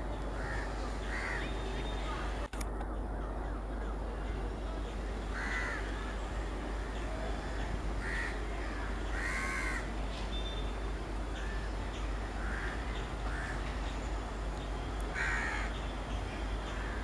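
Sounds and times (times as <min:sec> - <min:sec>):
crows cawing: 0:00.4 - 0:01.5, 0:05.3 - 0:05.9, 0:07.4 - 0:09.9, 0:12.4 - 0:13.6, 0:15.1 - 0:15.7.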